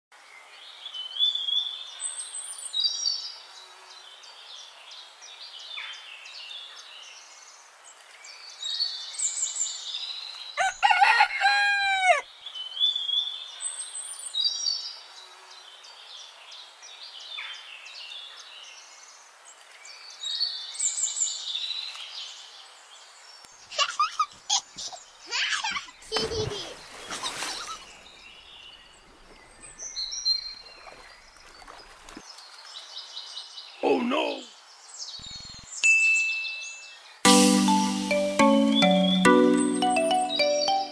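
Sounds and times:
songbirds chirping: 0.2 - 40.9
rooster crowing: 10.6 - 12.2.

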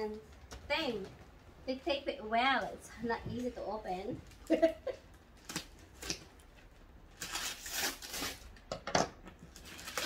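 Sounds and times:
wrapping paper rustling and tearing: 5.4 - 8.6, 9.5 - 10.0.

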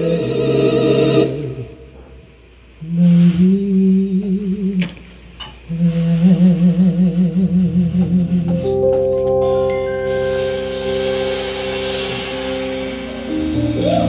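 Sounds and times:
band held chord: 8.5 - 14.0.

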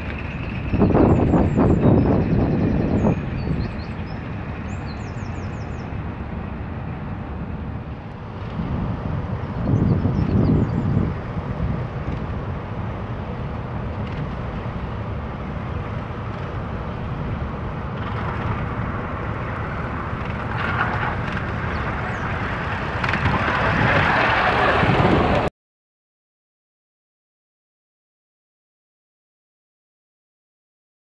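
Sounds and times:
steady low rumble: 0.0 - 25.5
steam locomotive passing: 10.9 - 25.5.

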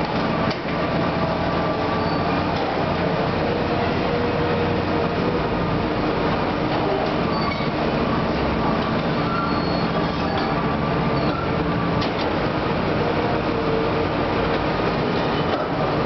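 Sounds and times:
excavator diesel engine running: 0.0 - 16.0
short metal squeals: 2.0 - 2.4, 7.3 - 7.8, 9.2 - 11.5.

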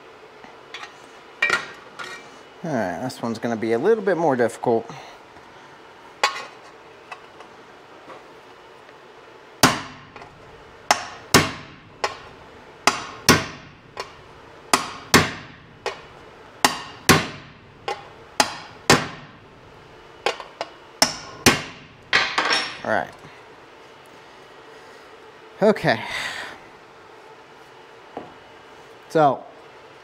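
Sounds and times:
hammer striking sheet metal: 10.9 - 19.3.

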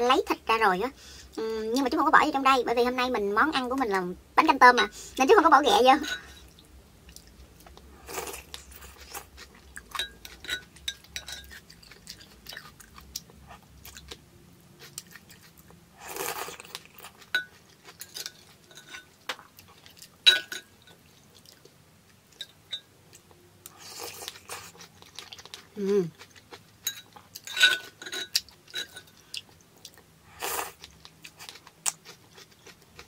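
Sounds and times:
wet chewing: 7.1 - 14.2, 14.8 - 20.2, 23.6 - 27.5, 28.2 - 33.0.

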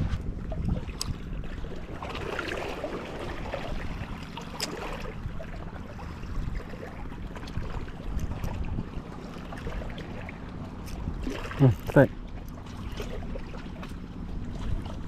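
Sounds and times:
wind buffeting microphone: 0.0 - 11.9
sea water washing: 0.0 - 15.0.

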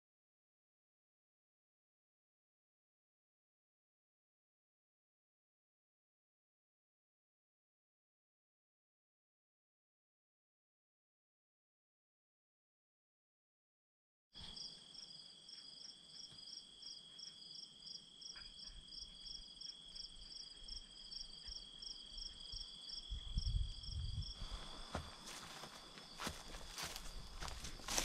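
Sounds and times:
insect chirping: 14.4 - 28.0
insects trilling: 14.4 - 28.0
footsteps through dry grass and leaves: 24.4 - 28.0.

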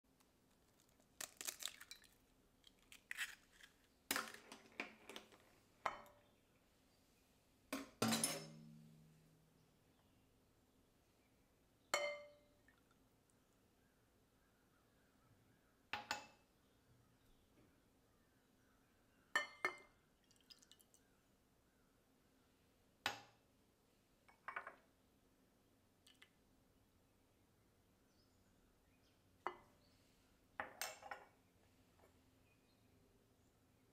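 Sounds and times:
kitchenware clinking and tapping: 5.8 - 6.2, 7.7 - 8.8, 16.0 - 16.4, 19.4 - 19.9, 24.3 - 24.8, 30.6 - 31.3
utensils clinking against a bowl: 7.8 - 8.7.

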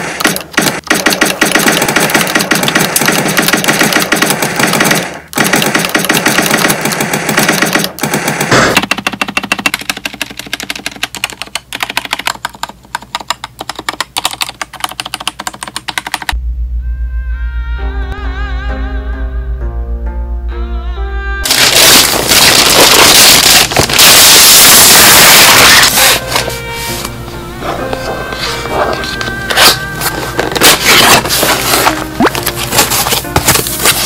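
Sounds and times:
mechanical keyboard typing: 0.0 - 16.4, 21.5 - 26.2.

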